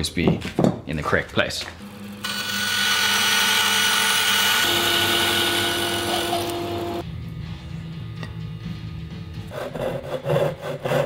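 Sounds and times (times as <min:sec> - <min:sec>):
wood router cutting: 0:01.8 - 0:07.0.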